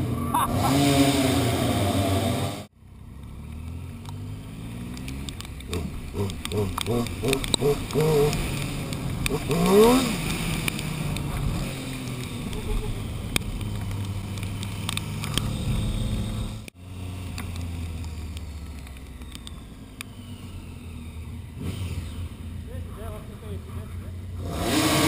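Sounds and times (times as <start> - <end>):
motorcycle engine cruising: 0.0 - 25.0
wind: 0.0 - 25.0
sharp clicks: 4.9 - 15.5, 16.6 - 20.6.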